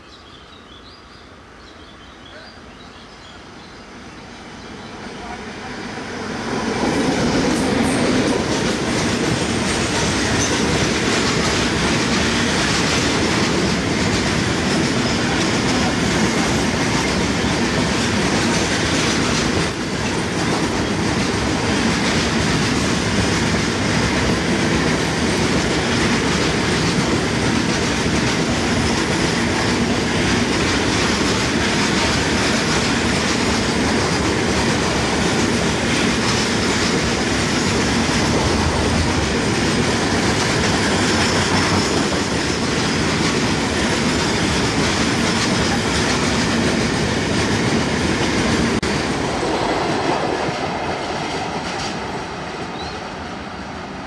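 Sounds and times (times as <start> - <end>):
freight train wheels over rail joints: 0.0 - 54.0.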